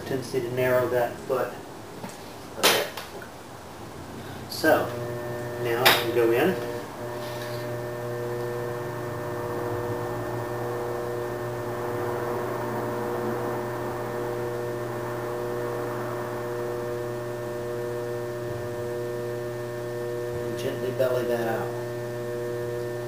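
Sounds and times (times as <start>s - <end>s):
potter's wheel motor humming: 4.4s - 23.0s.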